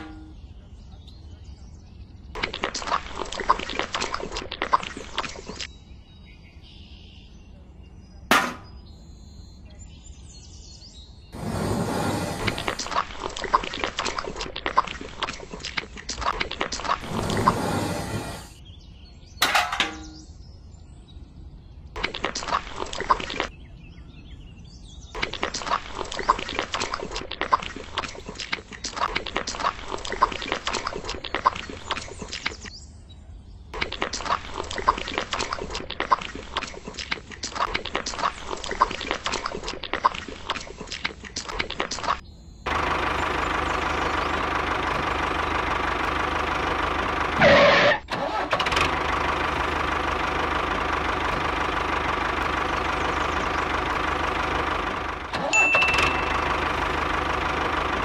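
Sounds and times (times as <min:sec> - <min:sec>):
engine running: 0:11.4 - 0:13.2, 0:16.8 - 0:18.6, 0:42.7 - 0:58.0.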